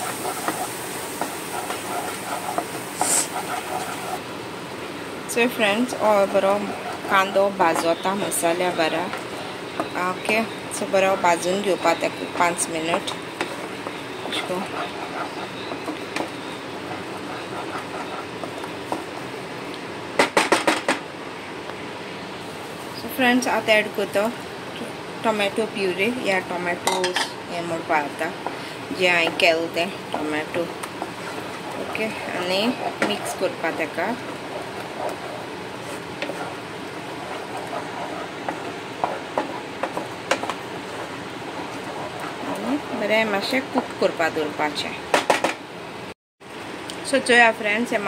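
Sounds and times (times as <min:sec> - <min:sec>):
spatula scraping paste in pan: 0:00.0 - 0:04.2, 0:05.8 - 0:10.3, 0:11.0 - 0:19.2, 0:29.2 - 0:42.9
spatula tapping pan: 0:00.0 - 0:04.2, 0:06.1 - 0:19.1, 0:30.1 - 0:42.7
steady hiss: 0:00.0 - 0:05.8.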